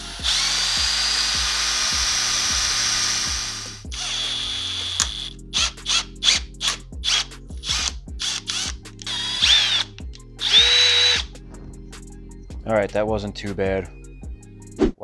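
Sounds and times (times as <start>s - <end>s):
cordless drill drilling metal: 0.0s - 11.3s
background music: 0.0s - 15.0s.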